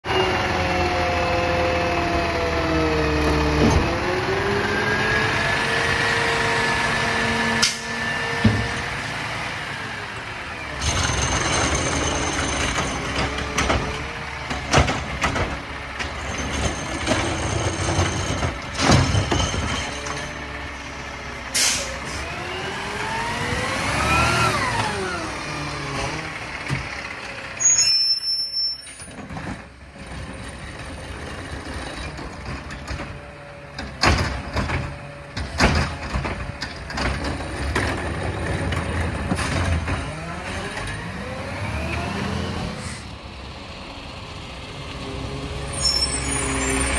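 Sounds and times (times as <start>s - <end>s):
garbage truck engine and hydraulics: 0.1s - 46.9s
cart dumping knocks: 10.8s - 20.1s
air brake hissing: 21.5s - 22.2s.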